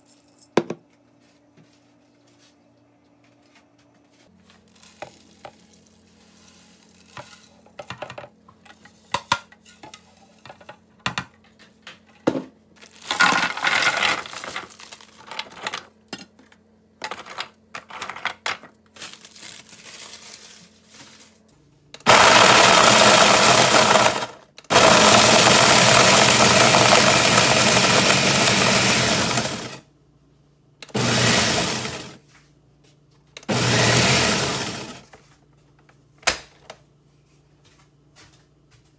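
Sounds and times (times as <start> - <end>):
blender grinding biscuits: 13.0 - 14.6, 22.0 - 29.8, 30.8 - 32.2, 33.4 - 35.1.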